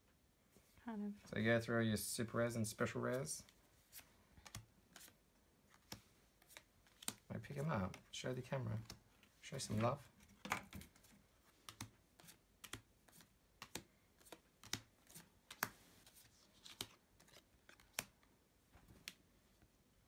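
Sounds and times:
trading cards clicking and tapping: 10.4 - 15.8.

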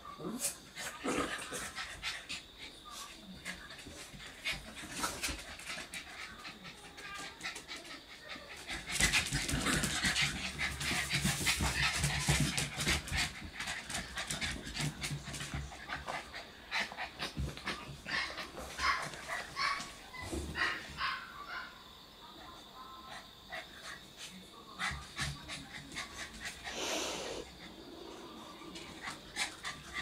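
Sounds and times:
puppies panting: 0.9 - 19.9
puppies scuffling: 8.6 - 21.0.

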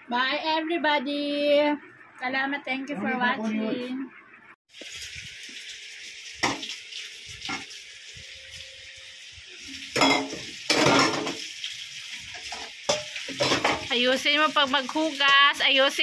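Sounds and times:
tap water running: 4.7 - 16.0
dishes clinking: 10.0 - 11.4, 12.5 - 13.9.

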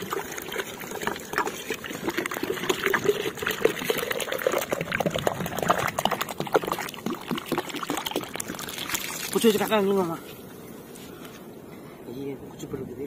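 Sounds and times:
water gurgling and splashing: 0.0 - 10.0.

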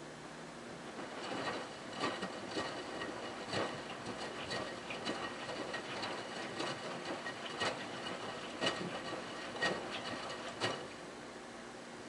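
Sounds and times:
washing machine sloshing: 0.8 - 11.1.

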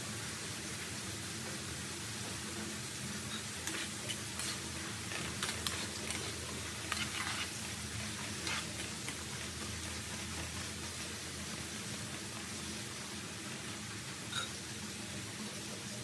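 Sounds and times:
potatoes sizzling in oil: 0.0 - 16.0
metal tongs clicking against wok: 3.6 - 7.5.

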